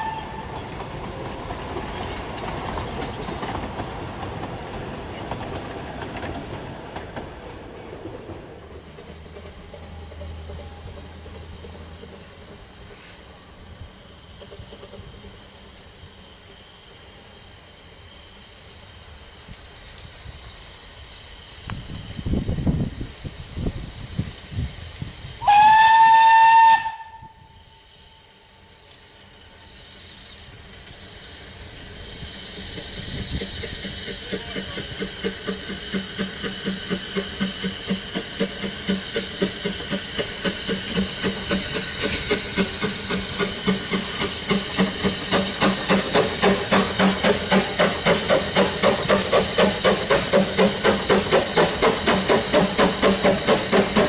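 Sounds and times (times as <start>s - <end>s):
steam locomotive whistle: 0.0s - 0.6s, 25.4s - 30.3s
steam exhaust chuffing: 20.1s - 54.0s.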